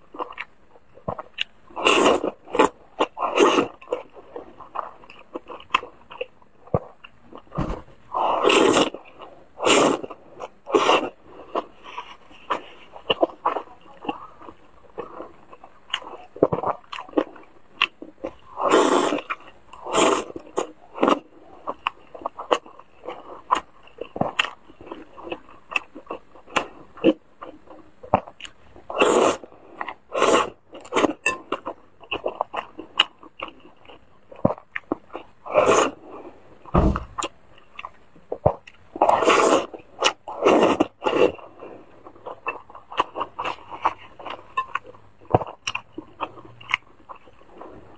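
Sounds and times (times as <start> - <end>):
wet chewing: 0.1 - 36.0, 37.2 - 47.9
noodle slurping: 8.1 - 9.0.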